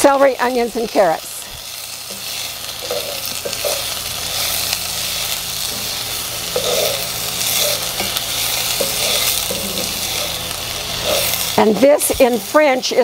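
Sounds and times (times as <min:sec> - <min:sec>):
vegetables sizzling in a pot: 0:00.0 - 0:13.0
wooden spatula stirring and scraping: 0:05.7 - 0:12.6.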